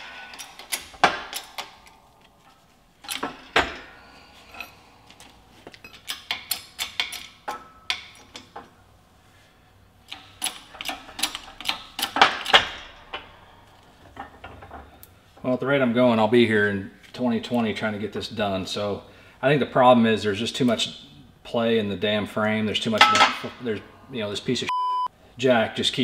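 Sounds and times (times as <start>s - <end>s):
metal clicks and knocks: 0.0s - 3.9s, 5.1s - 8.8s, 10.1s - 15.1s.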